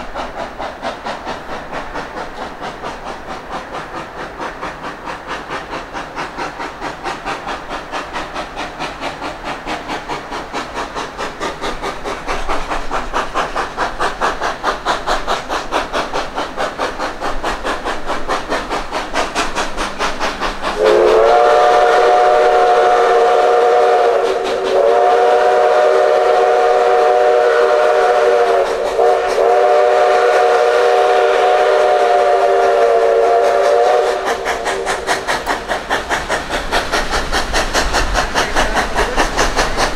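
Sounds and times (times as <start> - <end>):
steam locomotive exhaust chuffing: 0.0 - 39.9
steam whistle blasts: 20.8 - 35.0.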